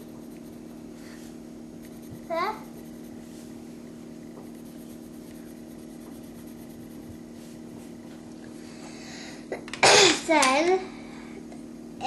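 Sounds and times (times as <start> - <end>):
pencil scratching on paper: 0.0 - 0.9, 1.8 - 3.5, 4.4 - 7.3
low hum: 0.0 - 9.4.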